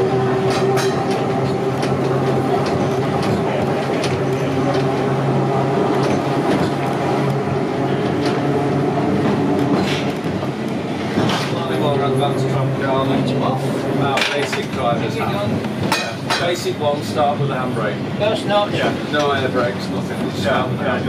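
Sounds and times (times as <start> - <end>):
wheels clicking on rails: 0.0 - 13.0
tram motor hum: 0.0 - 21.0.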